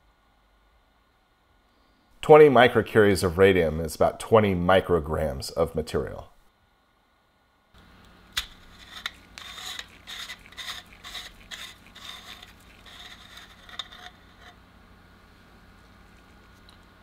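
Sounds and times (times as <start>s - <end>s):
threads scraping: 8.4s - 14.6s.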